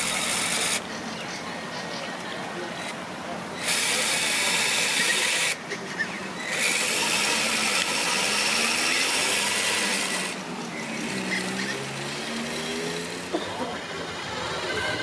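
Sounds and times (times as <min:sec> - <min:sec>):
electric motor and gearbox whining: 0:00.0 - 0:00.8, 0:03.6 - 0:13.4.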